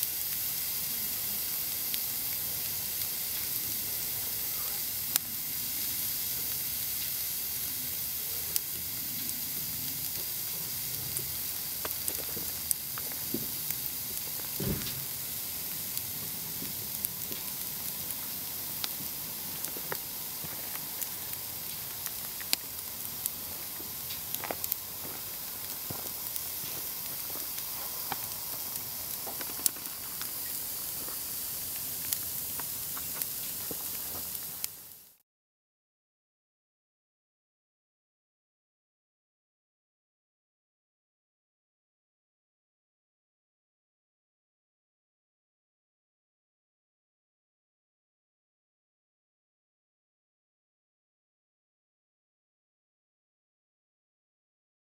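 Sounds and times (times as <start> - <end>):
food sizzling on a grill: 0.0 - 35.2
dull thump: 14.6 - 15.1.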